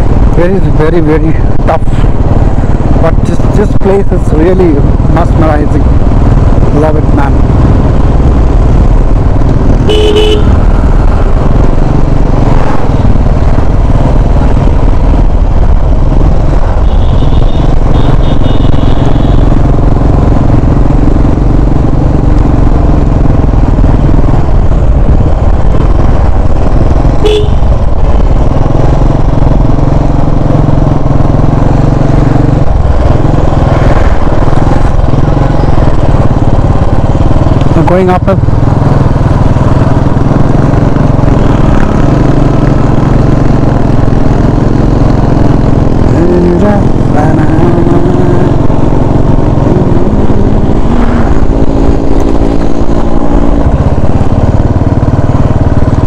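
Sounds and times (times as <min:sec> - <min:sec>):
motorcycle riding noise: 0:00.0 - 0:56.0
short horn toots: 0:09.9 - 0:10.6, 0:27.2 - 0:27.6.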